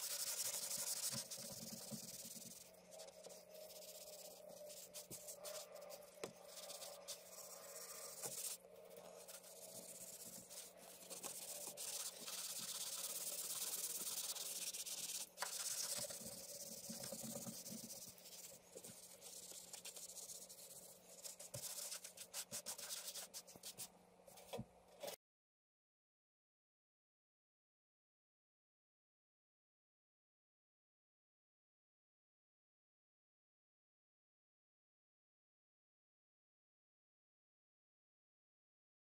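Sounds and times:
rubbing and scraping: 0.0s - 25.2s.

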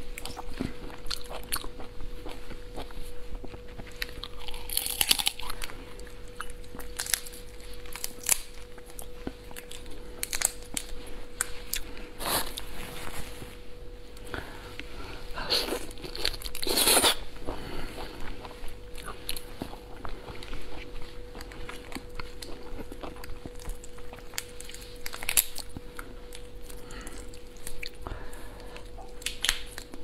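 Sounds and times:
faint steady hum: 0.0s - 30.0s
biting and chewing: 0.2s - 12.7s, 15.6s - 30.0s
lobster shell cracking: 8.0s - 8.6s.

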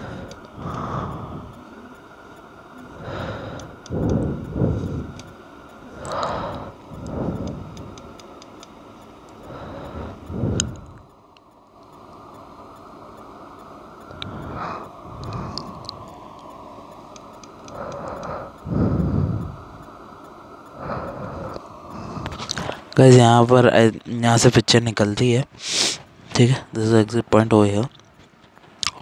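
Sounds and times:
small plastic ticks: 3.6s - 5.4s, 6.0s - 9.5s.

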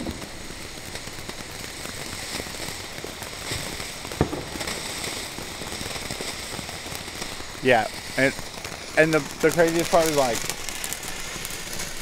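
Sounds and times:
sharp firework pop: 0.0s - 7.4s
firework fountain hissing and crackling: 0.0s - 12.0s.

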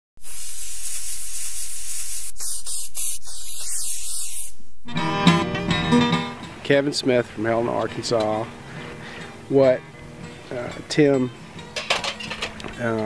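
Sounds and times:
loud spray hissing: 0.2s - 5.2s
acoustic guitar music: 4.8s - 13.0s.

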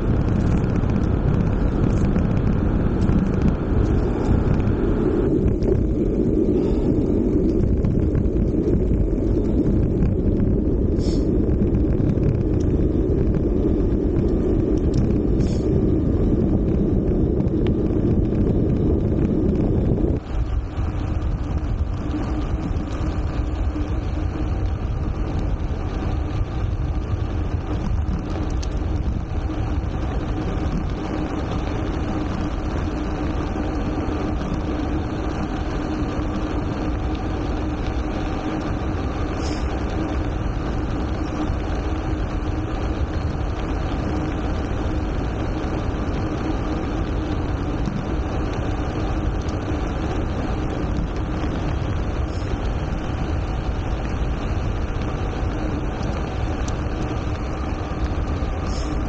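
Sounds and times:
steady low hum: 0.0s - 59.0s
tyre and road rumble: 0.0s - 59.0s
wind rush on microphone: 0.0s - 59.0s.

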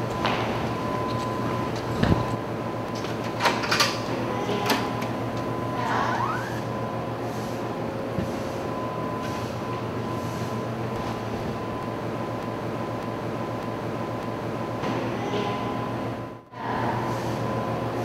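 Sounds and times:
steady low hum: 0.0s - 18.0s
brief squeak: 6.0s - 6.7s.

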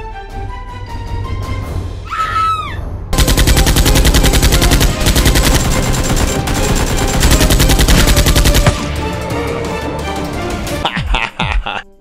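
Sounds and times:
rapid automatic gunfire: 3.2s - 9.0s.

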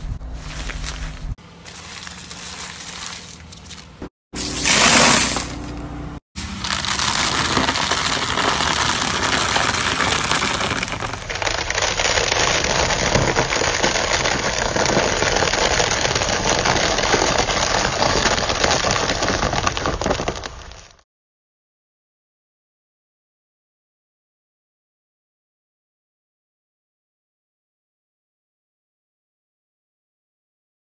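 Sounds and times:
tyre crushing spaghetti sticks: 0.4s - 5.6s, 6.4s - 20.8s.

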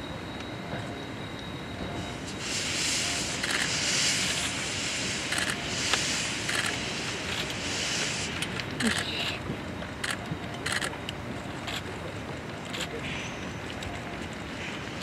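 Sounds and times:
steam locomotive hissing steam: 0.7s - 9.4s, 13.0s - 13.6s.

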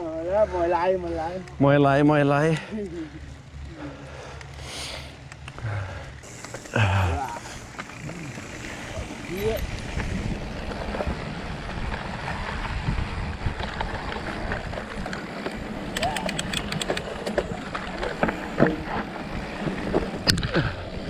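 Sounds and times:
bike rattling: 0.0s - 21.0s
tyres rumbling on dirt and rock: 5.6s - 21.0s
wind on microphone: 9.0s - 17.6s
sharp clicks: 15.9s - 17.4s.

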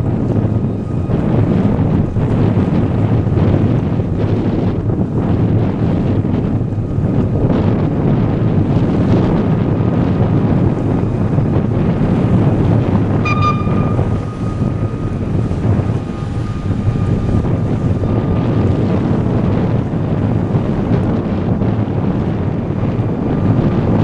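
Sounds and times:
wind buffeting the microphone: 0.0s - 24.0s
short high-pitched tone: 13.2s - 16.6s
faint steady tone: 13.2s - 18.1s.

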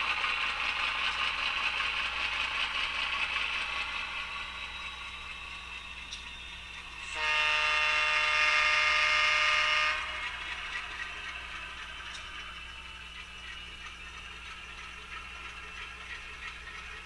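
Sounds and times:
model diesel engine sound: 0.0s - 17.0s
model train air horn blast: 7.0s - 10.4s.

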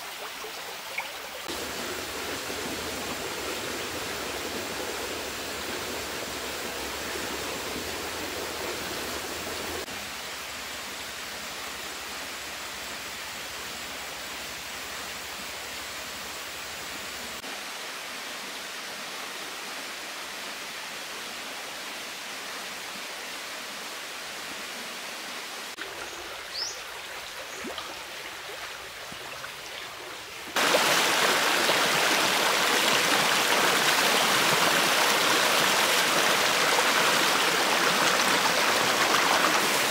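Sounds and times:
stream rushing over rocks: 0.0s - 12.6s, 25.4s - 39.9s.

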